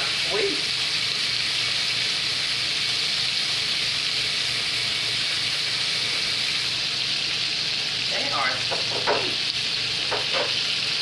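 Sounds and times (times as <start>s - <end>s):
chicken frying in hot oil: 0.0s - 11.0s.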